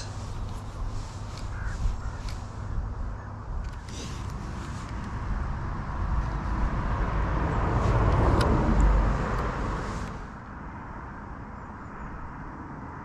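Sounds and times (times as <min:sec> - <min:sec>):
car passing by: 0:03.9 - 0:13.0.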